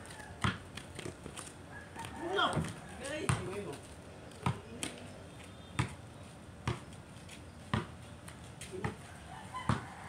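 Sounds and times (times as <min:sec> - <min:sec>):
basketball bouncing on concrete: 0:00.4 - 0:01.2, 0:02.0 - 0:03.8, 0:04.4 - 0:05.0, 0:05.8 - 0:06.0, 0:06.6 - 0:06.9, 0:07.6 - 0:08.0, 0:08.6 - 0:09.0, 0:09.7 - 0:09.9.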